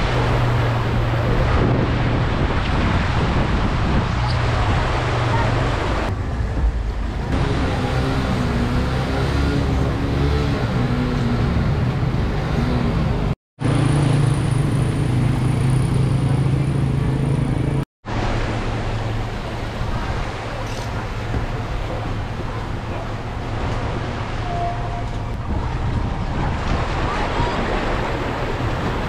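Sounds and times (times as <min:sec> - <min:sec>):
steady wash of water noise: 0:00.0 - 0:10.8, 0:18.0 - 0:29.0
motorcycle engines running: 0:07.3 - 0:17.8.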